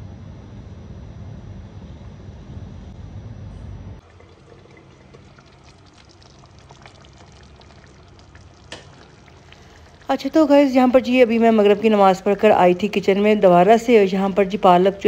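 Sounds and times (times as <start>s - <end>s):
low outdoor rumble: 0.0s - 15.0s
curry simmering in a frying pan: 4.0s - 11.2s.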